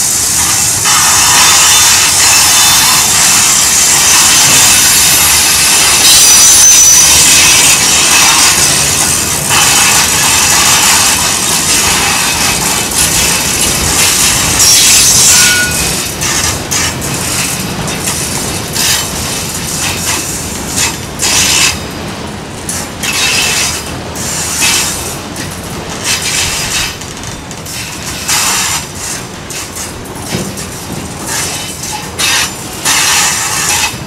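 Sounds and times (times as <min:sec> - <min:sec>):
wheel squeals and hisses: 0:00.0 - 0:17.5, 0:31.3 - 0:34.0
steel wheels rumbling on rail: 0:00.0 - 0:34.0.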